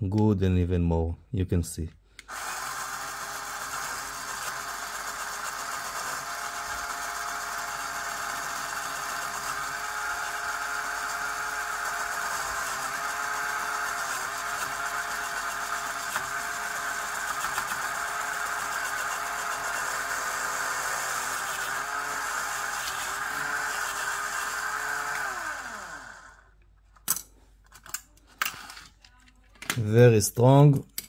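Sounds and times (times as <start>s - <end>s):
electric motor whine: 2.3s - 26.5s.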